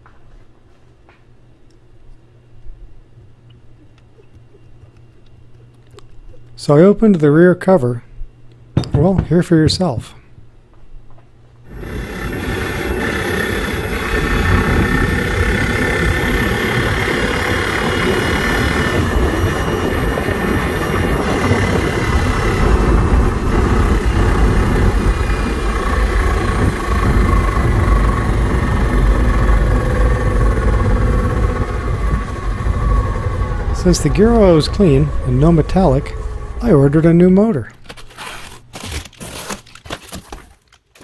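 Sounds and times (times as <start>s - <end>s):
heavy rough low thumping: 11.7s - 37.4s
electric motor whine: 11.7s - 38.9s.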